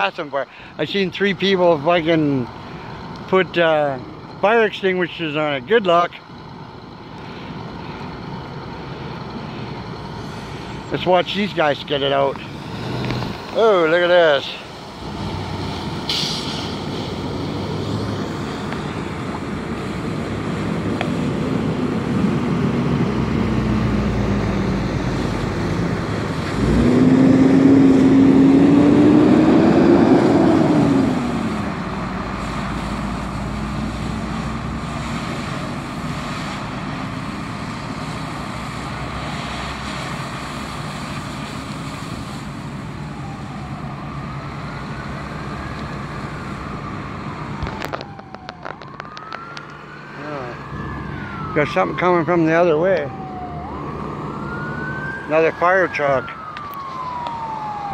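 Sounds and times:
fire engine droning: 0.0s - 57.9s
hose spraying water: 10.0s - 22.3s, 30.7s - 43.5s
hiss of steam: 15.6s - 17.4s.

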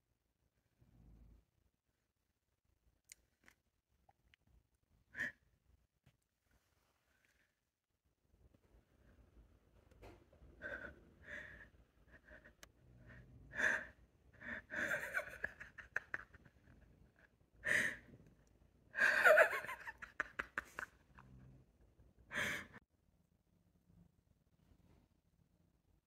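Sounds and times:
wheezing gasping breaths: 10.6s - 15.4s.

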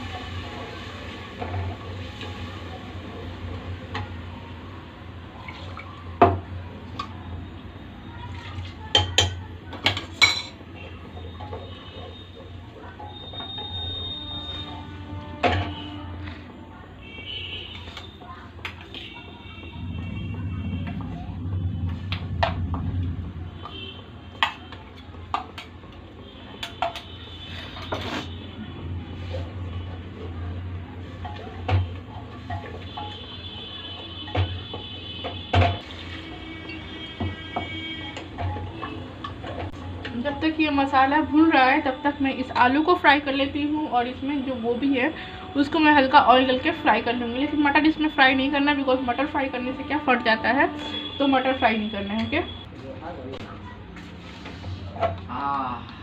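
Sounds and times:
food sizzling in a pot: 0.0s - 5.3s, 35.8s - 38.0s
steady low hum: 19.8s - 24.3s.

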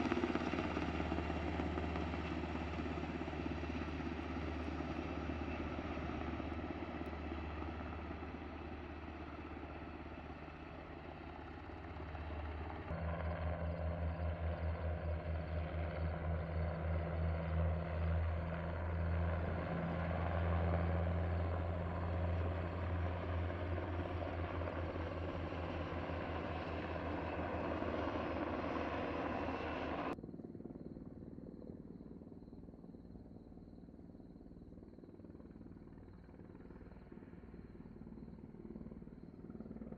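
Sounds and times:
helicopters flying overhead: 0.0s - 39.9s.

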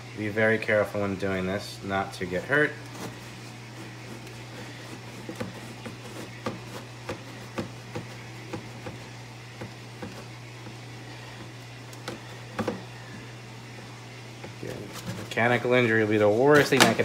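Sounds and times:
steady low hum: 0.0s - 17.0s
knife cutting plastic jug: 2.8s - 10.7s, 14.5s - 15.4s.

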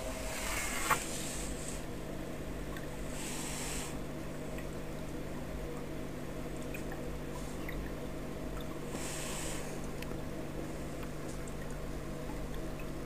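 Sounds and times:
aquarium filter hum: 0.0s - 13.0s
water trickling and dripping: 2.4s - 3.1s, 4.2s - 9.0s, 9.8s - 13.0s
hiss of rushing water: 3.1s - 4.0s, 8.9s - 9.8s.

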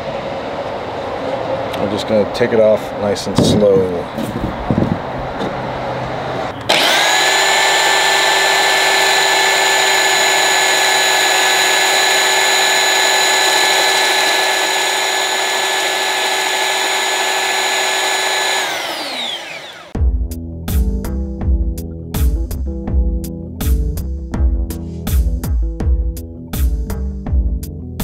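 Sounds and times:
belt sander whining: 5.4s - 20.0s.

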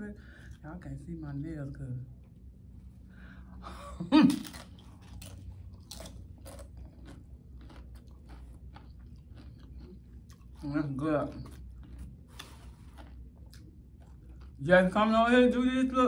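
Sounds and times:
crunchy chewing of tortilla: 2.9s - 15.5s.

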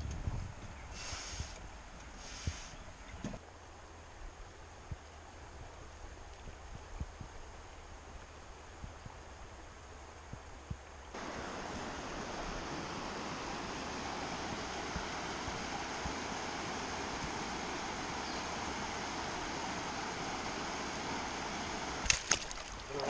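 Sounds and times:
faint outdoor hiss: 0.0s - 23.0s
river rushing over stones: 11.1s - 23.0s.

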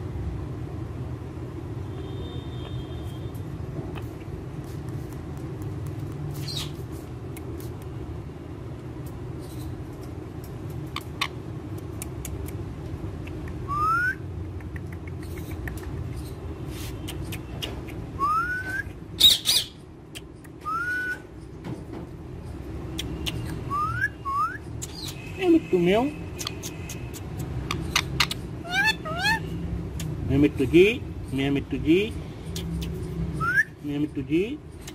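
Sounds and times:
parakeet whistled calls: 18.2s - 19.8s, 23.7s - 25.2s, 27.7s - 29.5s
parakeet harsh screech: 27.9s - 29.5s.

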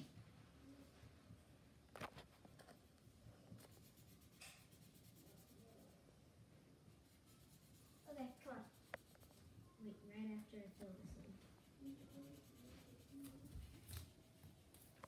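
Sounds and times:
markers scratching on paper: 3.5s - 6.0s, 7.0s - 9.6s, 10.2s - 15.0s.

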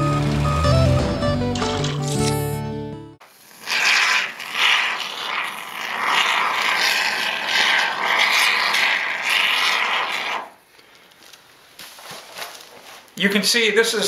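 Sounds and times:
spray foam can hissing: 3.2s - 10.6s.

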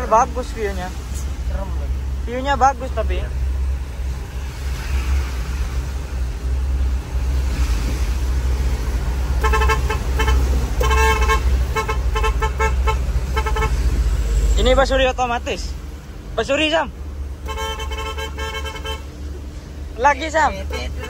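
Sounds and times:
vehicle rumbling on road: 0.0s - 21.0s
musical air horn tooting: 9.4s - 14.0s, 17.4s - 19.2s.

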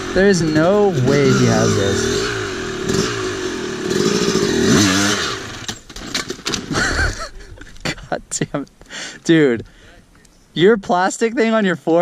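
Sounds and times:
dirt bike engine revving: 0.0s - 5.9s.

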